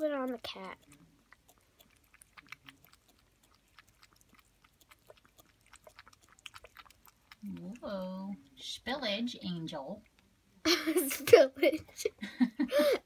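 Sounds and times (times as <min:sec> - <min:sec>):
cat drinking from a bottle: 0:00.0 - 0:08.8.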